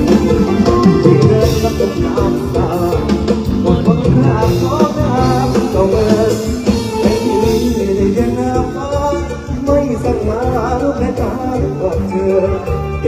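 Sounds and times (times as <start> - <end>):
drums: 0.0 - 13.0
guitar: 0.0 - 13.0
man singing into a microphone: 0.0 - 13.0.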